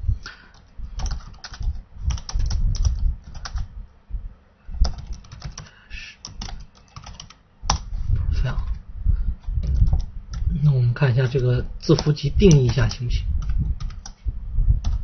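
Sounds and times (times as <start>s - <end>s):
typing on computer keyboard: 0.5s - 3.7s, 4.8s - 7.9s, 9.6s - 10.5s, 11.2s - 14.2s.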